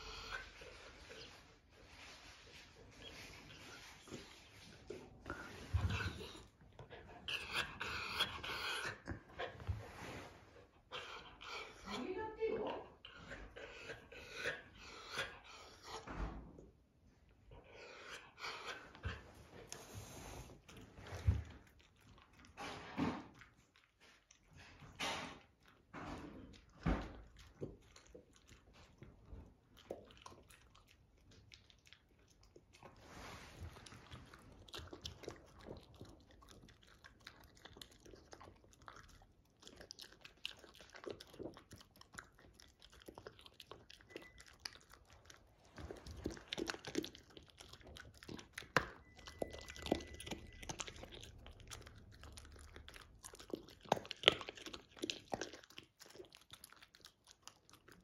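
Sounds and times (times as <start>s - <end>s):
dog crunching dry kibble: 25.6s - 58.0s.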